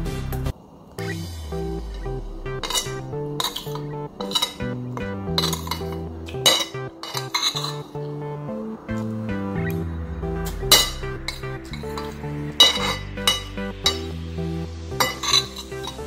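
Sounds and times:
background music: 0:00.0 - 0:16.0
cutlery clinking on ceramic plate: 0:02.6 - 0:08.0, 0:11.9 - 0:14.1, 0:15.0 - 0:16.0.

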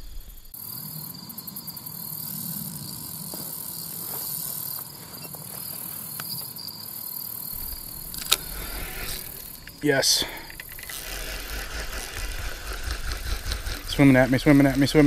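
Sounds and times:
insects chirring: 0:00.0 - 0:15.0
faint ticks: 0:07.3 - 0:15.0
sharp click: 0:07.6 - 0:11.5.

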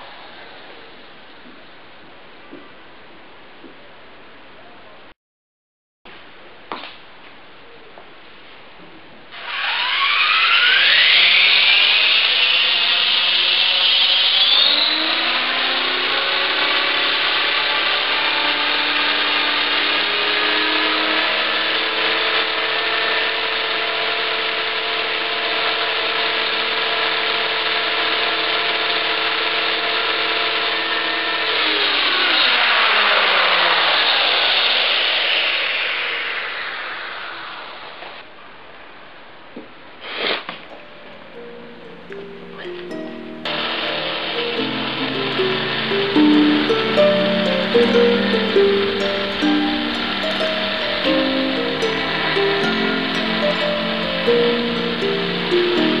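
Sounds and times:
rc helicopter motor whine: 0:09.3 - 0:38.0, 0:40.7 - 0:56.0.

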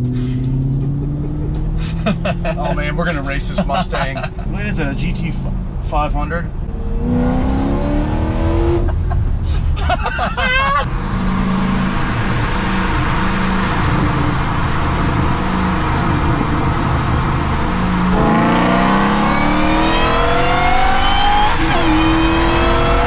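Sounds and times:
road and tyre noise: 0:00.0 - 0:23.0
rising motor whine: 0:11.4 - 0:23.0.

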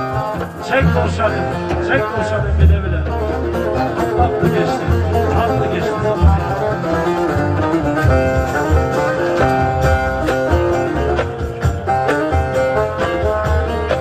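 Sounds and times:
plucked string melody: 0:00.0 - 0:14.0
steady low beat: 0:00.0 - 0:14.0.

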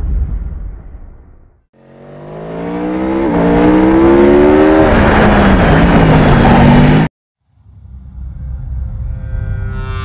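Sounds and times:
racing engine accelerating: 0:01.8 - 0:07.1.

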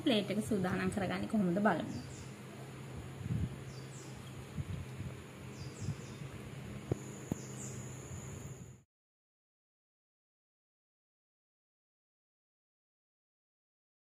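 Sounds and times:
steady low hum: 0:00.0 - 0:08.8.

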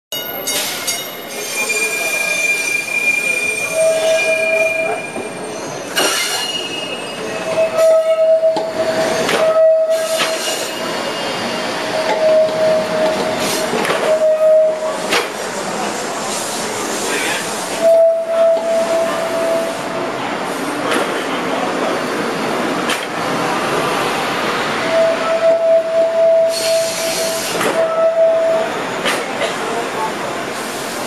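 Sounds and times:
trolley wheels squealing: 0:00.2 - 0:15.0
wheels rumbling on rails: 0:03.2 - 0:31.0.

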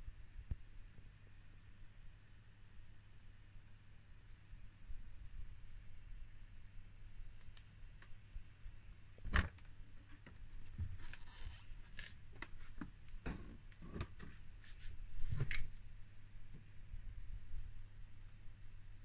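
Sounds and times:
plastic and glass enclosures handled: 0:09.2 - 0:15.8
steady low hum: 0:09.8 - 0:19.0.

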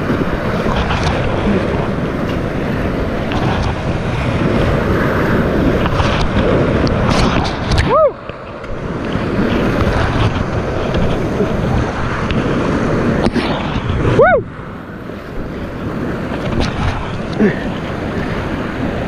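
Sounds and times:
rapids rushing and splashing: 0:00.0 - 0:19.0
wind buffeting microphone: 0:00.0 - 0:19.0
person whooping: 0:07.8 - 0:08.2, 0:14.1 - 0:14.5.

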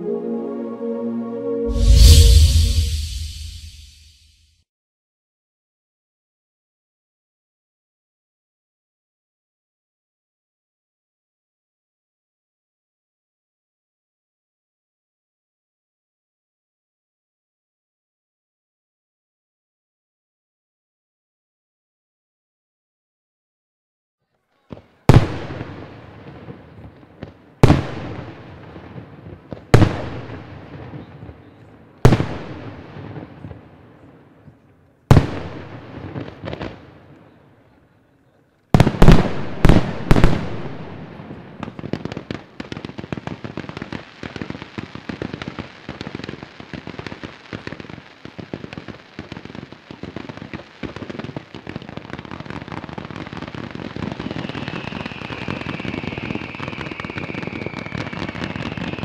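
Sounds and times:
high steady whistle: 0:00.0 - 0:04.2, 0:54.5 - 0:59.0
firework crackling: 0:01.7 - 0:04.1, 0:43.4 - 0:59.0.

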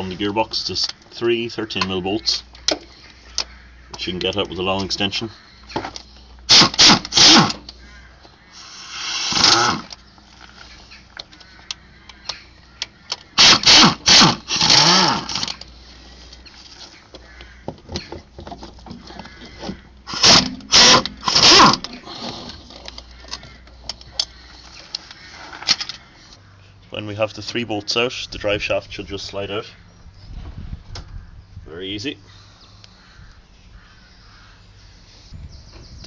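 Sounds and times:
power tool undoing bolts: 0:05.8 - 0:07.7, 0:08.6 - 0:10.0, 0:13.1 - 0:15.7, 0:20.1 - 0:22.9.

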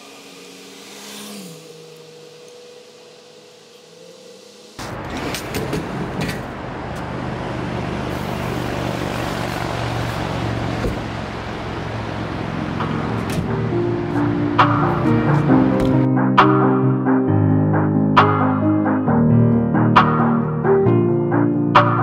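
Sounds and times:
road traffic noise: 0:00.0 - 0:16.1.

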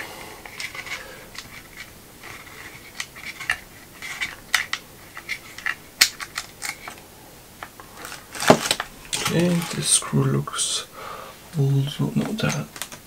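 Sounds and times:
clicks and clinks of small parts: 0:00.4 - 0:07.0, 0:12.3 - 0:13.0.

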